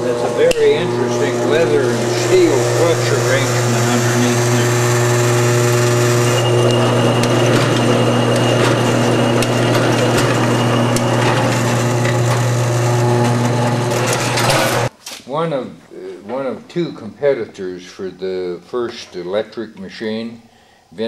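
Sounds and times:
washing machine motor hum: 0.0s - 14.9s.

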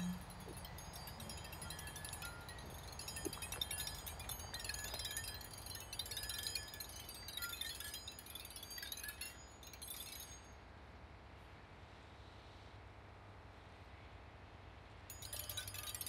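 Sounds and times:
metal chimes ringing: 0.0s - 10.6s, 15.1s - 16.0s.

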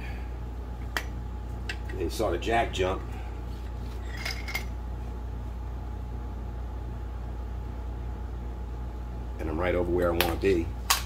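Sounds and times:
steady low hum: 0.0s - 11.0s
metal tools clinking: 4.0s - 4.7s.

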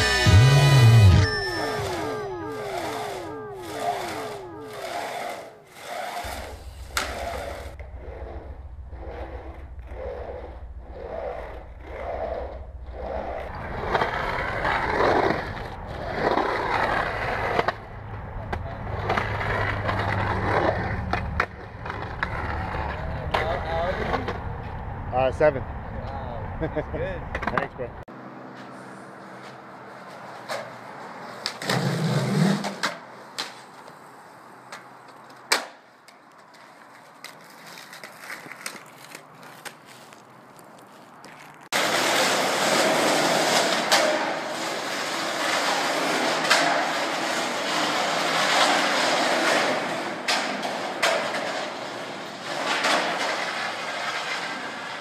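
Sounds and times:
skateboard wheels rolling on concrete: 1.2s - 25.1s, 27.0s - 55.0s
skateboard clacking on ground: 34.7s - 40.0s, 41.2s - 55.0s
skateboard landing slap: 35.5s - 35.8s.

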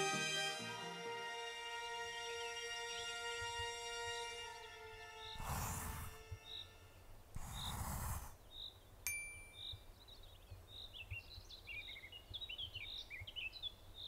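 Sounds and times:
bird twittering song: 6.4s - 6.8s, 8.4s - 14.0s
bright ding: 9.1s - 9.8s.

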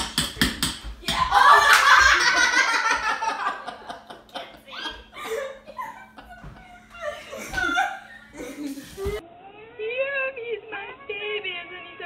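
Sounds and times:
women laughing: 1.2s - 9.2s.

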